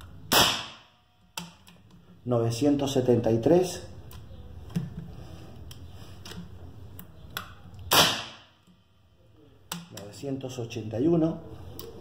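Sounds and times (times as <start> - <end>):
air rifle shot: 0.3 - 0.9, 7.9 - 8.5.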